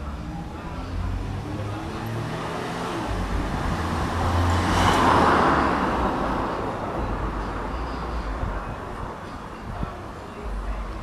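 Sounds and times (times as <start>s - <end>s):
vehicle passing by: 0.0s - 8.5s.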